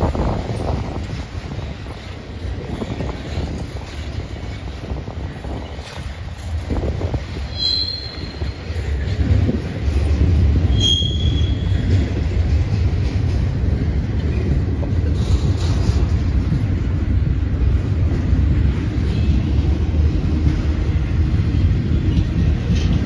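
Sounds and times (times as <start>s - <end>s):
wheel squealing on rail: 0.0s - 17.7s
train wheels rumbling on rail: 0.0s - 23.0s.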